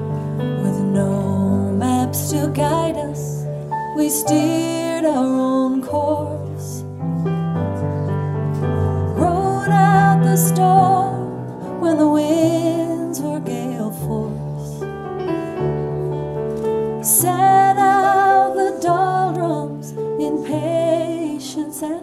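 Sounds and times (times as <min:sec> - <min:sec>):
piano chords: 0:00.0 - 0:22.0
person singing slow song: 0:09.1 - 0:14.8, 0:17.0 - 0:22.0.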